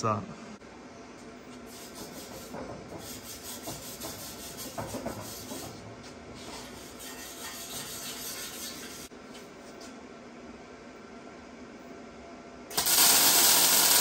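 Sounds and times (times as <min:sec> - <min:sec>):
metal scraping and rubbing: 0:01.7 - 0:09.1.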